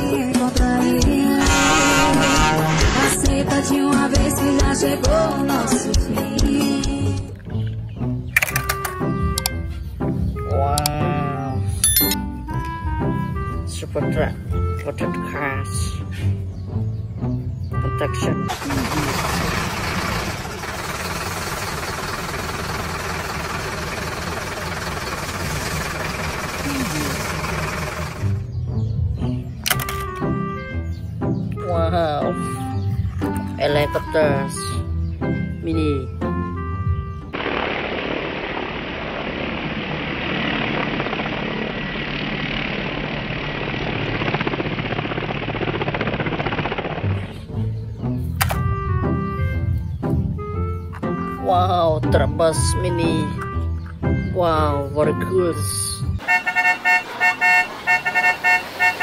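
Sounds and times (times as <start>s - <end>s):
truck engine rumbling: 1.4s - 3.8s, 16.1s - 31.4s, 32.7s - 59.0s
helicopter rotor beating: 18.5s - 28.4s, 37.4s - 47.3s
turbine whine: 37.3s - 47.2s.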